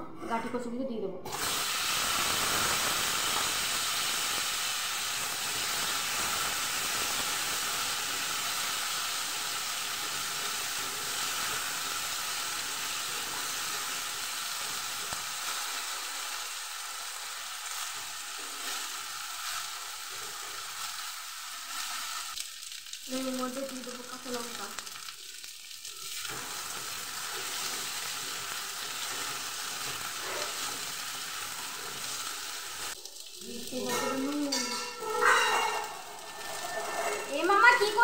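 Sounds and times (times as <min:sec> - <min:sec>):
food sizzling in hot oil: 0:01.3 - 0:38.0
wooden spatula scraping: 0:35.0 - 0:38.0.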